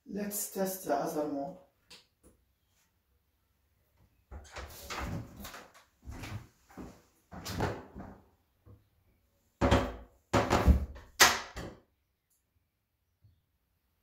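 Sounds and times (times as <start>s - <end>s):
door thumps and knocks: 9.6s - 11.8s.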